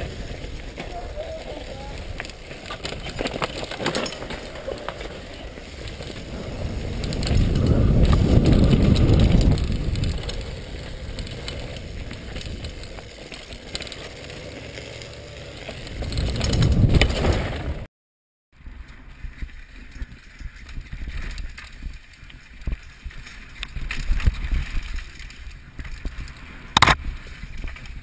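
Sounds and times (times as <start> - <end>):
mountain bike rattling: 0.0 - 17.9, 18.6 - 28.0
bike chain clicking: 0.9 - 17.0
wind rushing on microphone: 5.2 - 13.2, 15.8 - 17.8.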